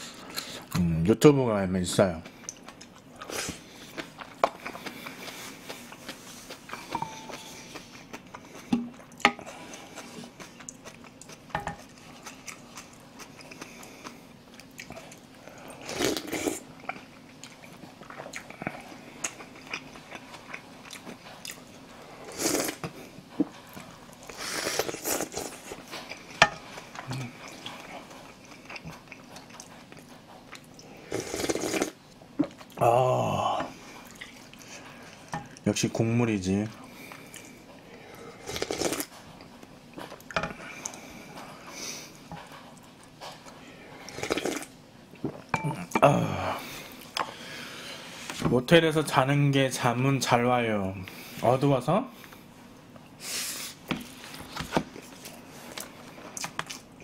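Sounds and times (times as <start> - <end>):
chewing with wet clicks: 2.2 - 15.7, 16.7 - 21.8, 25.3 - 31.0, 34.0 - 35.7, 37.0 - 37.8, 55.7 - 56.9
slurping broth: 30.8 - 32.0.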